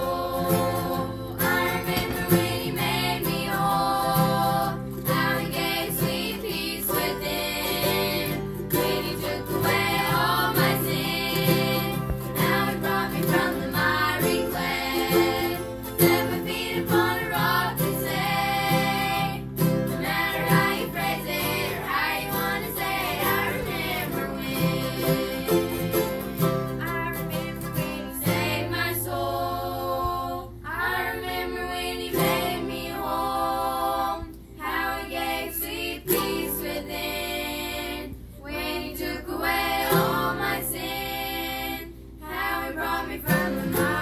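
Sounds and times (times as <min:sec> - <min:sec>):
mandolin: 0:00.0 - 0:29.0, 0:43.2 - 0:44.0
strummed acoustic guitar: 0:00.0 - 0:33.4, 0:36.0 - 0:38.4, 0:39.5 - 0:41.2, 0:41.9 - 0:44.0
children singing: 0:00.0 - 0:44.0
ukulele: 0:00.0 - 0:44.0.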